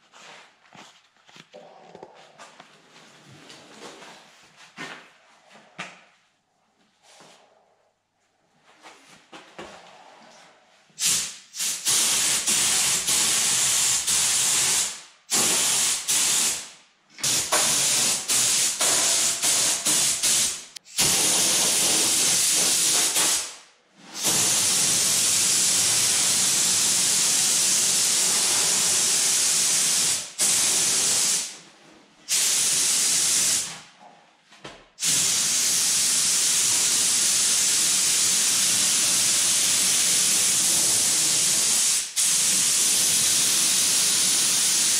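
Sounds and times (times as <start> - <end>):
spray gun hissing: 11.0 - 23.6, 24.2 - 31.5, 32.3 - 33.7, 35.0 - 44.9.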